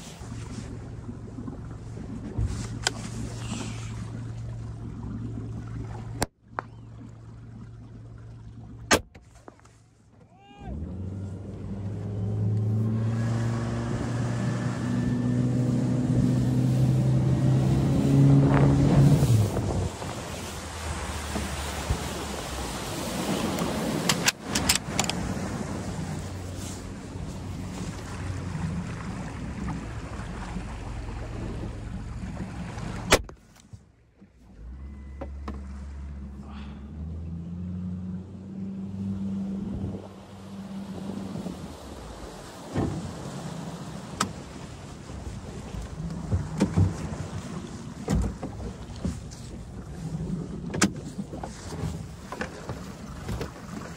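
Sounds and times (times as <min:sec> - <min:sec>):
outboard motor humming: 0:00.0 - 0:53.9
water wash: 0:10.3 - 0:33.5, 0:34.5 - 0:53.9
wind noise: 0:17.0 - 0:26.3.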